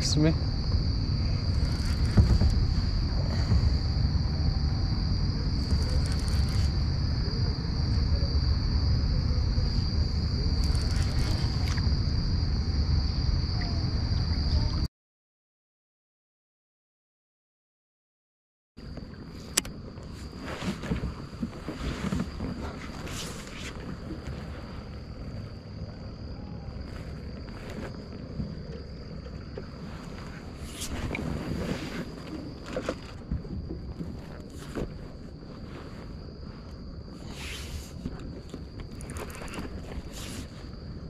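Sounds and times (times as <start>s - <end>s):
high-pitched insect drone: 0.0s - 14.9s
insect chorus droning: 0.0s - 14.9s, 18.8s - 41.0s
low rumble: 0.0s - 14.9s
low wind rumble: 0.0s - 14.9s, 18.8s - 41.0s
microphone handling noise: 0.6s - 4.9s.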